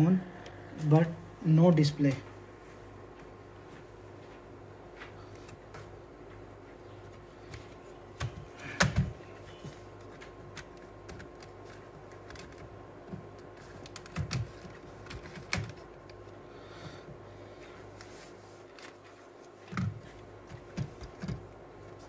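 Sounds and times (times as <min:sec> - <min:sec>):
steady low hum: 0:00.0 - 0:22.0
plastic laptop casing knocking: 0:19.7 - 0:21.5.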